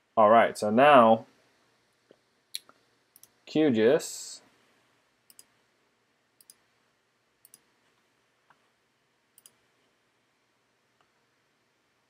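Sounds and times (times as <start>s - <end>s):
computer mouse clicks: 2.6s - 3.4s, 5.3s - 5.6s, 6.4s - 6.6s, 7.4s - 7.7s, 9.4s - 9.6s.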